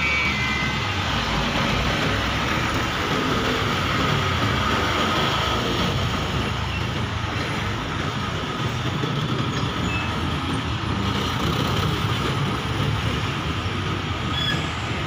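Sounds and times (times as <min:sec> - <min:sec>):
trucks driving past: 0:00.0 - 0:15.0.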